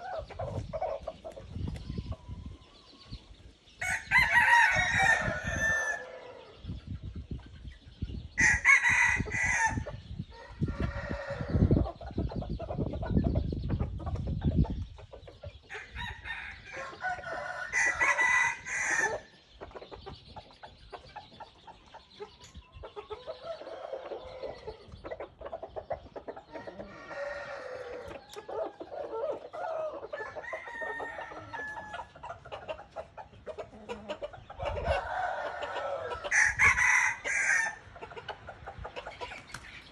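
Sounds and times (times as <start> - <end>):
clucking and calls: 0.0 - 39.9
roosters crowing: 3.8 - 6.6, 8.4 - 12.0, 15.7 - 19.4, 23.2 - 24.9, 26.4 - 32.3, 33.8 - 38.2.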